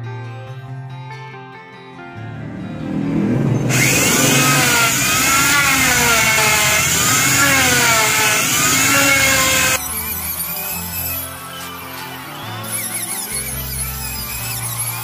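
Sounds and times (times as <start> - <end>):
background music: 0.0 - 15.0
router cutting wood: 2.8 - 11.7.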